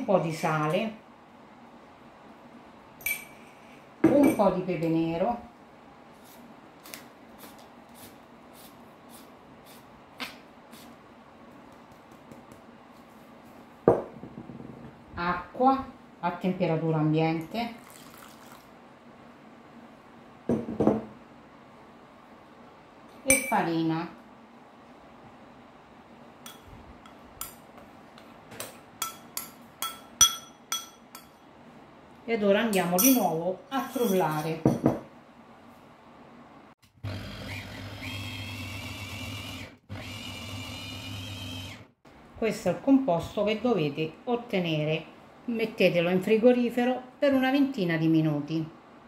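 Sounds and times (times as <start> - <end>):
sharp knock on tabletop: 13.9 - 14.7, 20.5 - 21.1
metal spoon clinking on ceramic bowl: 23.3 - 23.6, 26.5 - 27.6, 29.0 - 31.4, 32.8 - 34.8.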